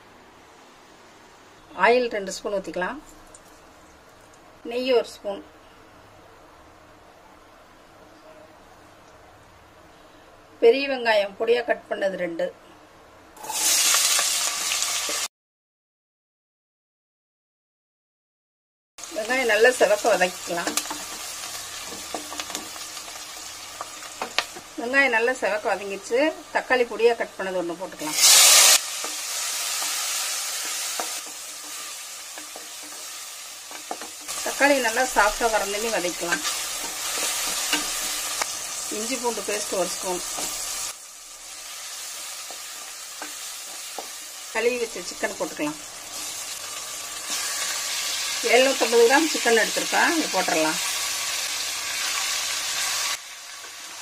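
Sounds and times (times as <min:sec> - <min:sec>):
faint background hiss: 0:00.0 - 0:13.6
vegetables sizzling in oil: 0:01.8 - 0:05.4, 0:13.4 - 0:15.3, 0:19.0 - 0:54.0.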